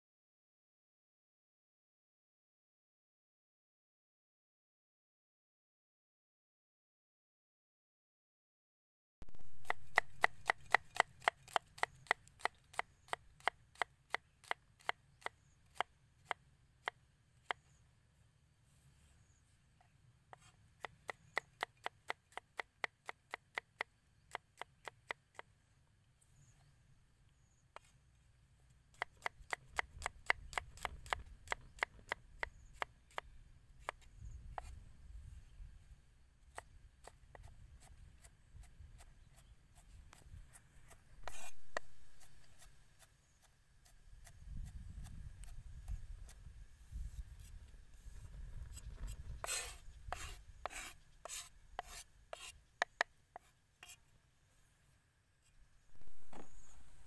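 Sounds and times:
cleaver chopping on wooden block: 0:09.6 - 0:17.6
rasping noise: 0:40.8 - 0:42.8.

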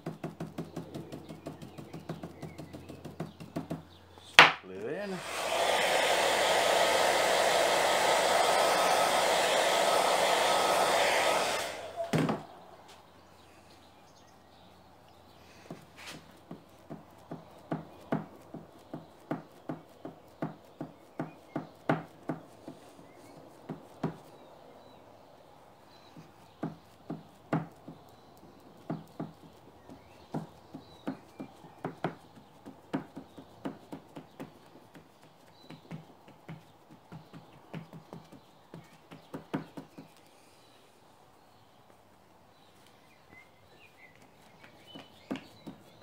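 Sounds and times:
rag dabbing on panel: 0:00.0 - 0:12.6, 0:15.5 - 0:24.3, 0:26.1 - 0:40.2.

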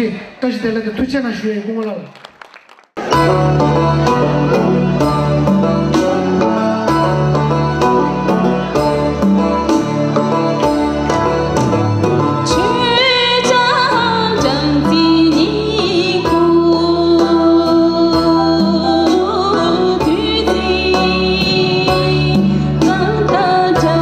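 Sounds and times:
backing music with steady beat: 0:03.0 - 0:24.0
woman singing into microphone: 0:12.4 - 0:24.0.

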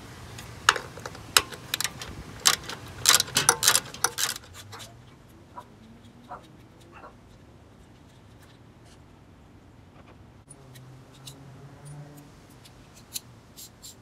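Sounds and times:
socket ratchet clicking: 0:01.4 - 0:04.8.

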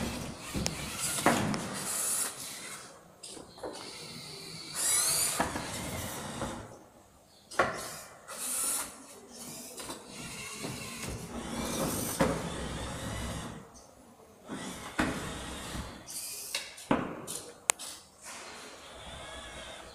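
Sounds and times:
robot motors running: 0:00.0 - 0:02.9, 0:03.8 - 0:06.8, 0:07.8 - 0:13.6.

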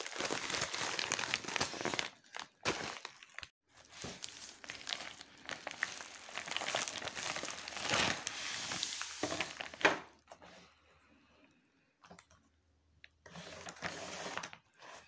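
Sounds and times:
plastic packaging crinkling: 0:00.0 - 0:10.2.

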